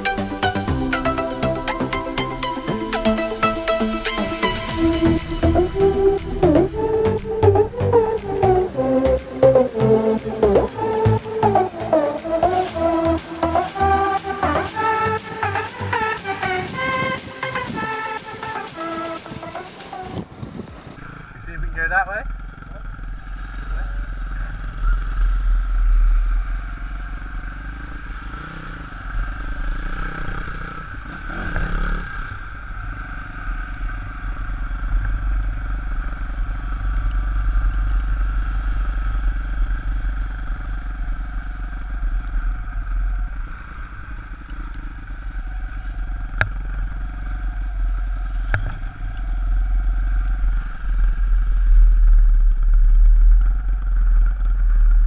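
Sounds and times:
pit bike engine running: 0.0s - 19.5s, 21.0s - 55.0s
wind buffeting on microphone: 20.0s - 21.0s.

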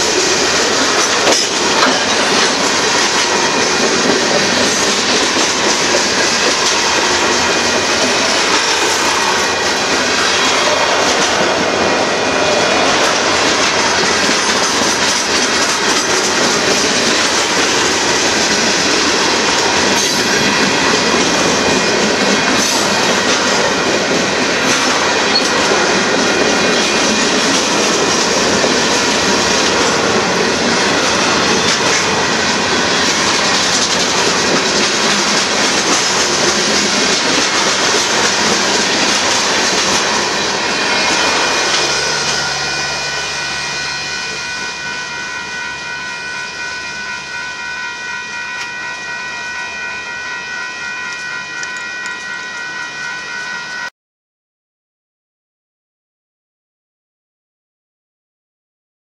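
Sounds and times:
wheels clacking over rail joints: 0.0s - 42.8s
freight train rumbling past: 0.0s - 53.9s
steady high ringing tones: 11.8s - 53.9s.

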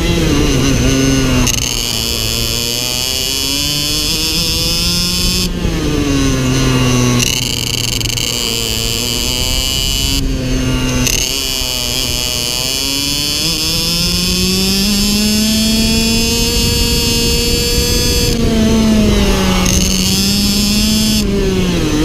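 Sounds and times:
kart engine revving: 0.0s - 22.0s.

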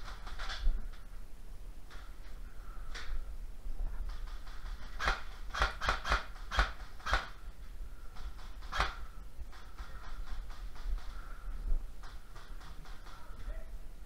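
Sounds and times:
low steady rumble: 0.0s - 14.0s
sharp clicks: 8.1s - 11.2s, 12.0s - 13.3s.

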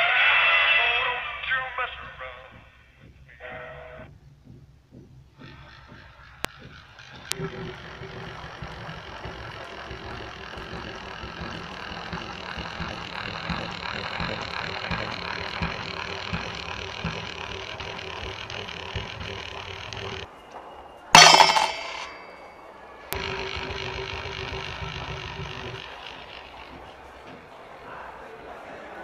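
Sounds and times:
mechanical whirring with hum: 0.8s - 21.0s, 23.1s - 28.2s
object clattering into metal mug: 21.2s - 22.2s.

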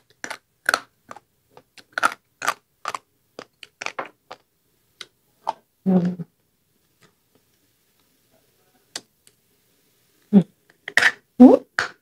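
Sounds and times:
person chewing food: 0.0s - 4.5s.

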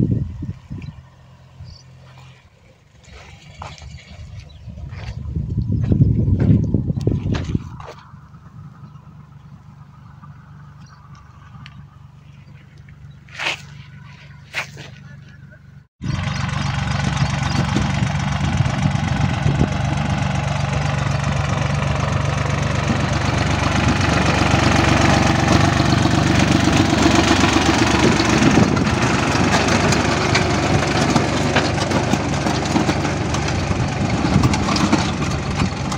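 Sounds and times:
tractor diesel engine knocking: 15.1s - 35.9s.

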